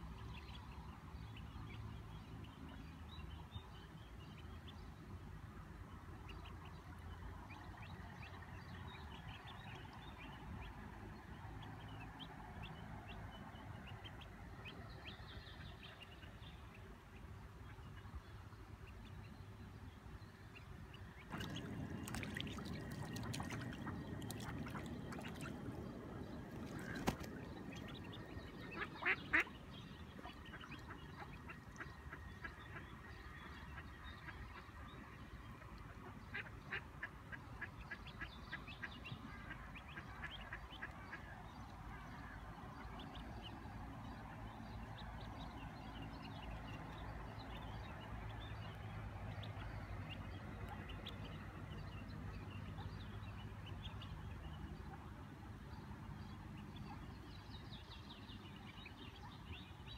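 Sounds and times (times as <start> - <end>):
ducklings peeping: 21.2 - 29.6.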